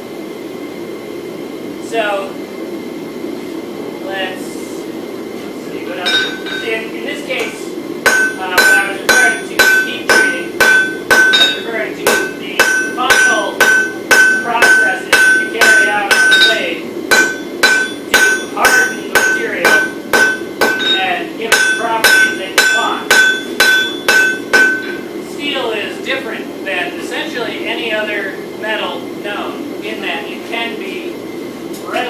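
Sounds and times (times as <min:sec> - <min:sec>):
hammer striking steel on anvil: 0:06.0 - 0:06.8, 0:07.4 - 0:25.0.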